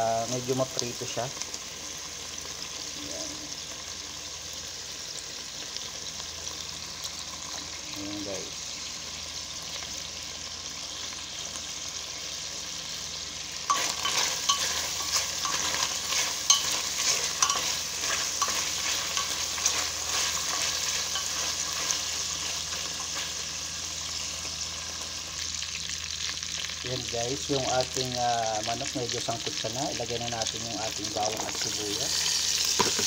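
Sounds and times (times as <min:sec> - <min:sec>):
chicken sizzling in hot oil: 0:00.0 - 0:33.0
wooden spatula scraping pot: 0:13.7 - 0:23.2.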